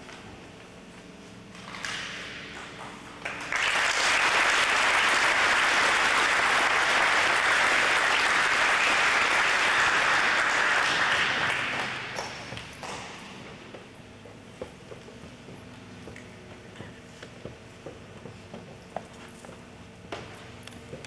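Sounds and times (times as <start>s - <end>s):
audience applauding: 3.2s - 13.0s.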